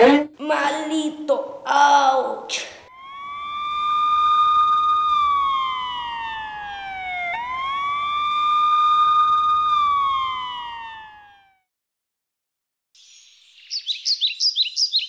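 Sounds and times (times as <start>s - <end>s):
siren wailing: 2.8s - 11.7s.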